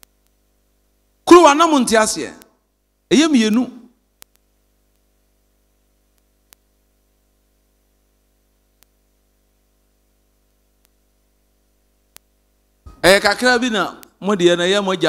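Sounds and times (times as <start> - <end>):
faint electrical hum: 0.0 - 15.0
faint clicks: 4.2 - 5.1, 6.1 - 6.7, 8.8 - 9.0, 10.8 - 11.0, 12.1 - 12.3.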